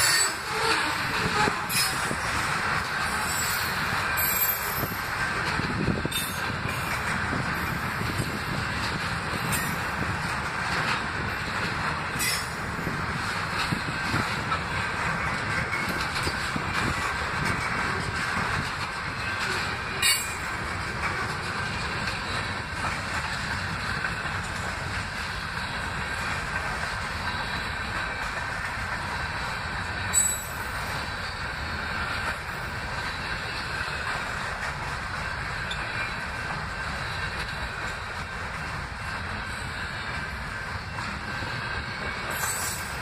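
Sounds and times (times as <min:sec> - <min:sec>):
train wheels rumbling on rail: 0:00.0 - 0:43.0
sharp metallic clanks: 0:19.4 - 0:20.6.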